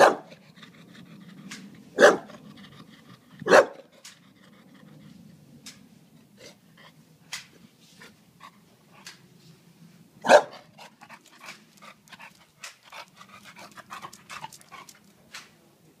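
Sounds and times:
dog panting and snuffling: 0:00.3 - 0:05.5, 0:10.5 - 0:15.2.

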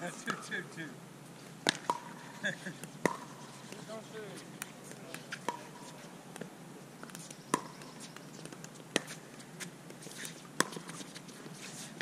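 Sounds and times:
paddles hitting a plastic ball: 0:01.6 - 0:02.1, 0:02.7 - 0:04.0, 0:04.6 - 0:09.2.

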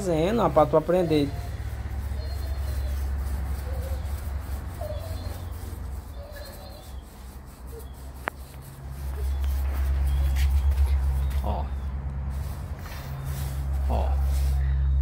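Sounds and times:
faint animal calls: 0:00.0 - 0:11.9.

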